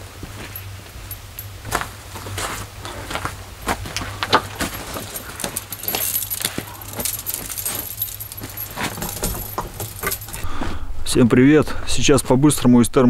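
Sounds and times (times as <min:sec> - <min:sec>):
light metallic jingling: 0:00.4 - 0:03.2, 0:03.8 - 0:10.5.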